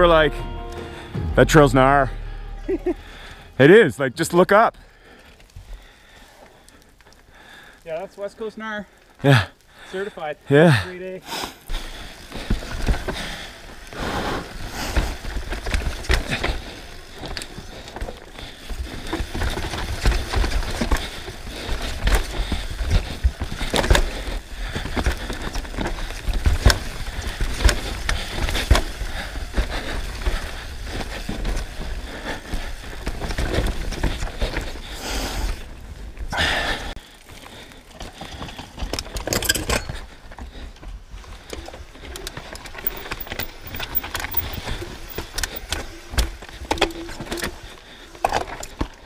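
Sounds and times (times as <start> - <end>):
tyres rolling over rock: 11.7 - 35.0.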